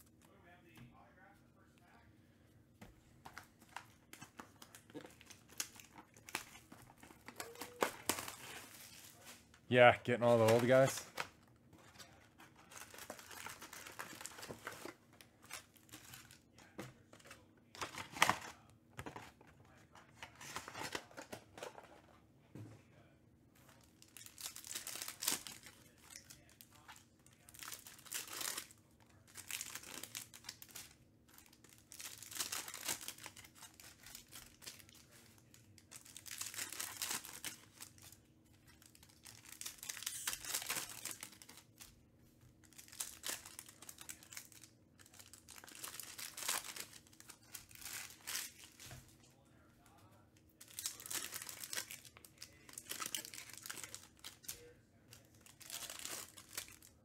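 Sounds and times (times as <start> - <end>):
foil packs tearing and crinkling: 10.2 - 11.2, 12.5 - 16.4, 24.0 - 26.5, 27.4 - 28.7, 29.3 - 38.2, 38.8 - 41.7, 42.7 - 48.9, 50.6 - 54.6, 55.4 - 57.0.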